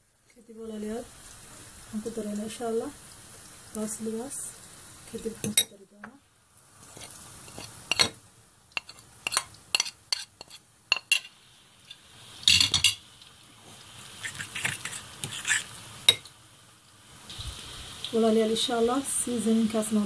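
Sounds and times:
fork clinking against ceramic bowl: 7.5 - 8.2, 8.8 - 11.3.

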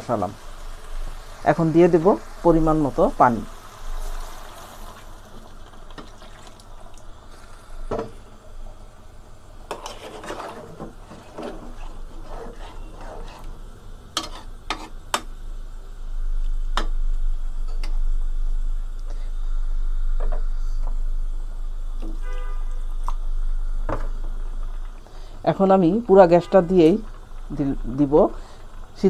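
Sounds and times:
water pouring into a metal pot: 4.1 - 7.1
steady low hum: 6.6 - 29.0
metal spatula scraping a pot: 9.7 - 13.5, 14.2 - 15.3.

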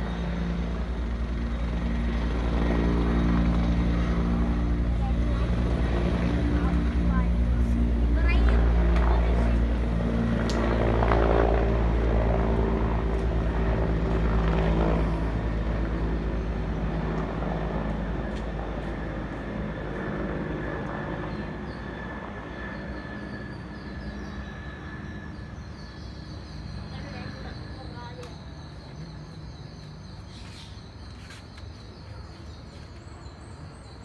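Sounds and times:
helicopter rotor and engine: 0.0 - 34.0.

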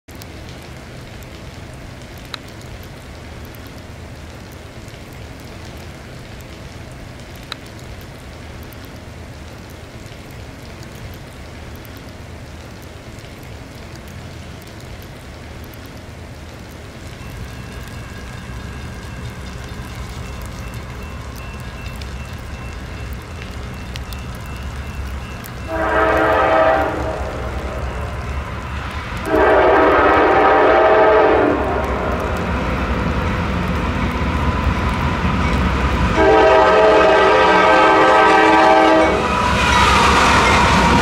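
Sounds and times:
light rain hissing: 0.1 - 41.0
sharp ticks: 17.0 - 25.7
steady high tones: 17.2 - 26.4, 27.0 - 29.2
low rumble: 26.8 - 30.4, 31.4 - 36.8.

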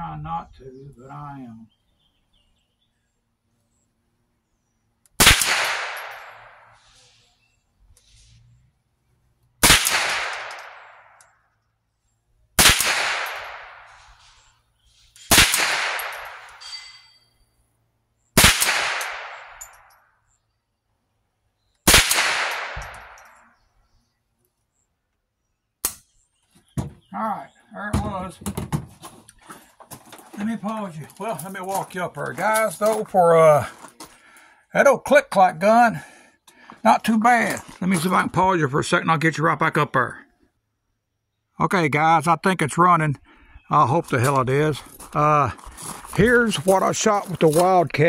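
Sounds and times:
rifle shots echoing: 5.2 - 6.8, 9.6 - 11.2, 12.6 - 14.1, 15.2 - 16.6, 18.4 - 19.8, 21.8 - 23.4.

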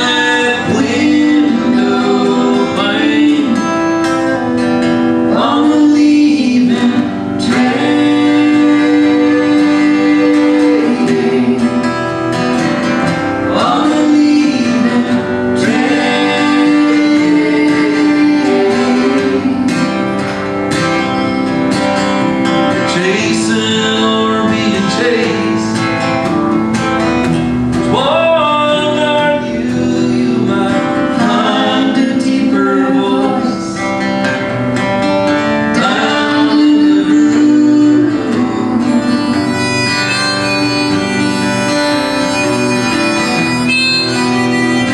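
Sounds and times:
person singing: 0.0 - 4.6, 5.3 - 12.2, 13.4 - 20.3, 22.8 - 25.8, 27.9 - 33.9, 35.7 - 42.5
harmonica: 0.0 - 44.9
strummed acoustic guitar: 0.0 - 44.9.

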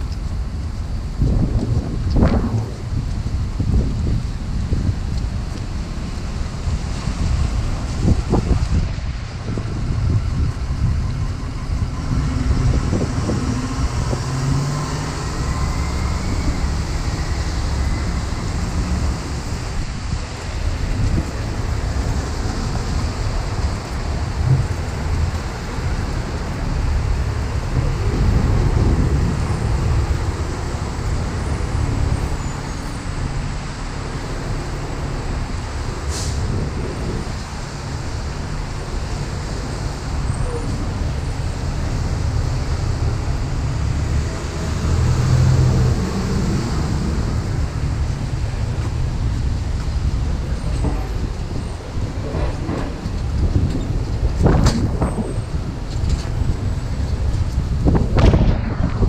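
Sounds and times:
traffic on wet street: 0.0 - 59.0
wind buffeting microphone: 0.0 - 59.0
short hiss: 36.1 - 36.5.

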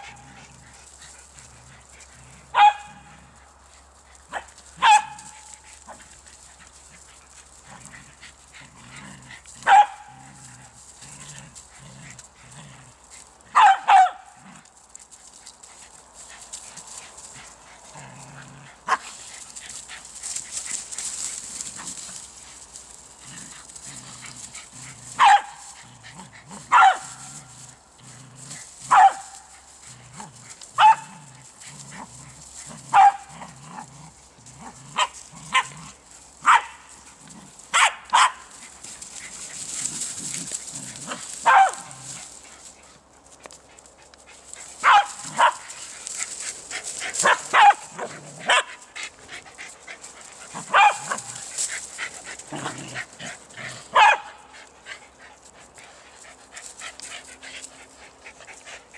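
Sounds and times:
dog barking: 2.5 - 3.1, 4.3 - 5.3, 9.6 - 10.2, 13.6 - 14.2, 25.2 - 25.6, 26.7 - 27.2, 28.9 - 29.3, 30.8 - 31.1, 32.9 - 33.3, 36.4 - 36.8, 37.7 - 38.4, 41.4 - 42.0, 44.8 - 45.6, 47.2 - 48.7, 50.7 - 51.2, 54.0 - 54.4.

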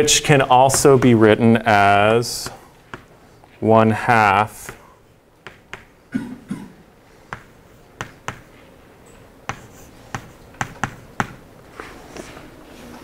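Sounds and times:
chalk tapping on blackboard: 2.4 - 3.1, 5.4 - 6.0, 7.3 - 8.6, 9.5 - 11.4.

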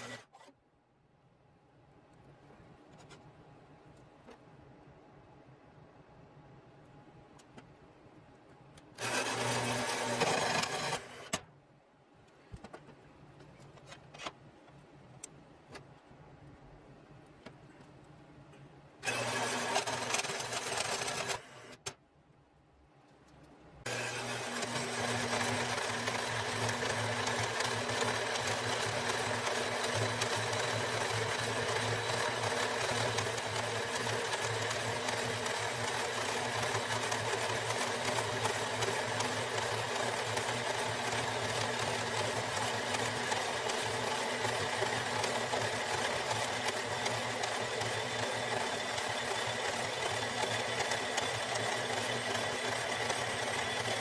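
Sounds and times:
bandsaw motor hum: 0.0 - 0.5, 9.0 - 11.4, 19.0 - 21.8, 23.9 - 54.0.

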